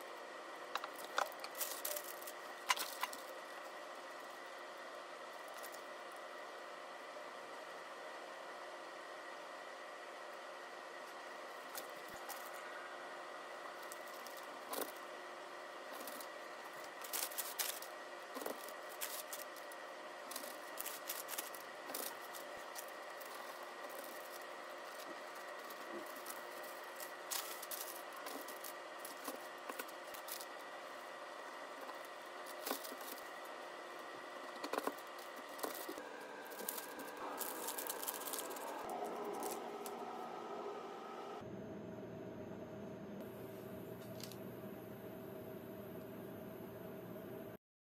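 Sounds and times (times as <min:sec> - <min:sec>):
faint humming tones: 0:00.0 - 0:47.6
parchment paper rustling: 0:00.8 - 0:04.5, 0:11.6 - 0:12.9, 0:13.7 - 0:15.2, 0:15.8 - 0:40.2.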